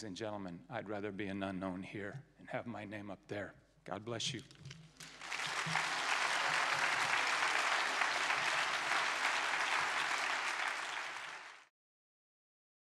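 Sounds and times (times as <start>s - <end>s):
audience applauding: 5.0s - 11.7s.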